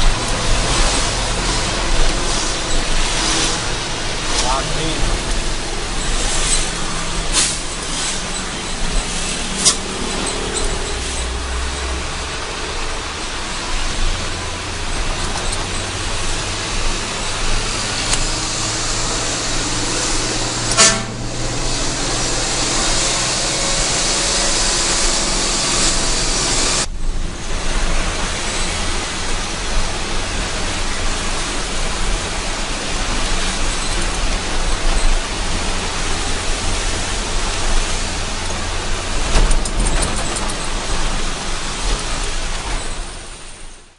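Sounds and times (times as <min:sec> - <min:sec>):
vehicle engine and road noise: 0:00.0 - 0:43.9
short horn toot: 0:20.6 - 0:21.3.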